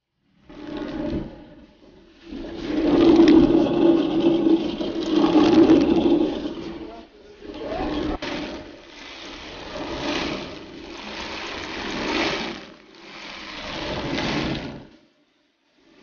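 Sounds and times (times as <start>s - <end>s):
millstones grinding maize: 2.3s - 8.6s.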